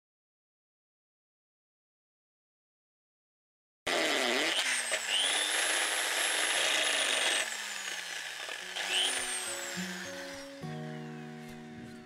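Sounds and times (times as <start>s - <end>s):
electric drill boring through tile: 3.9s - 10.6s.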